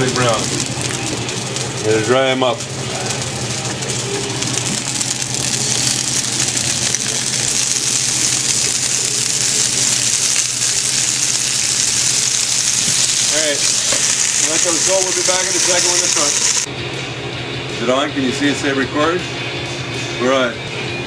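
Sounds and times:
chicken sizzling in frying pan: 0.0 - 16.7.

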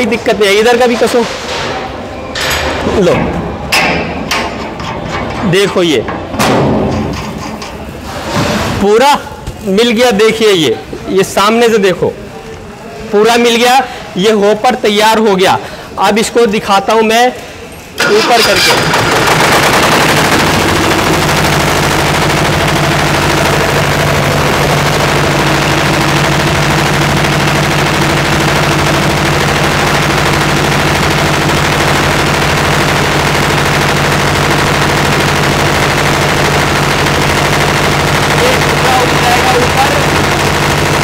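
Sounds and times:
diesel engine running loudly: 18.0 - 41.0.

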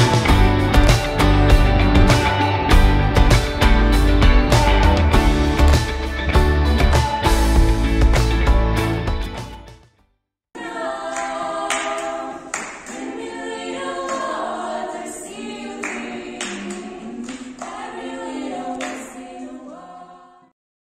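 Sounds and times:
background music: 0.0 - 9.9
group singing a cappella: 10.6 - 20.6.

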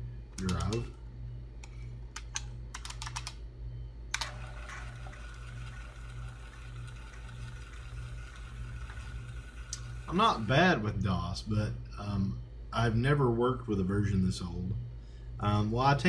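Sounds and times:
computer hum: 0.0 - 16.0
keyboard typing: 2.2 - 3.4
floppy drive whirring: 4.0 - 11.3.

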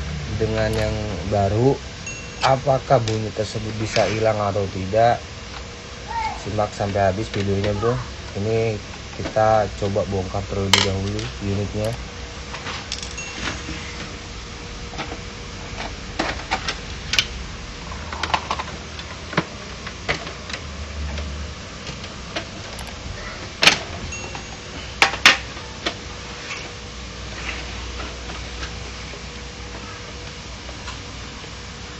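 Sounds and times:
faint steady hum: 0.0 - 31.9.

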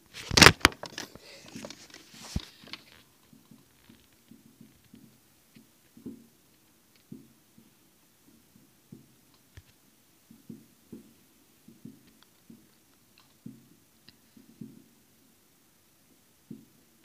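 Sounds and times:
distant fireworks thuds and pops: 0.0 - 15.0, 16.4 - 16.8
firework sharp crack: 0.1 - 3.0.

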